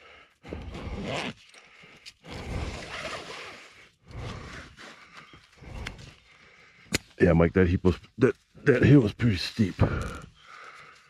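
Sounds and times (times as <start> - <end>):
person breathing hard: 0.0 - 3.0, 3.6 - 6.9, 9.8 - 11.0.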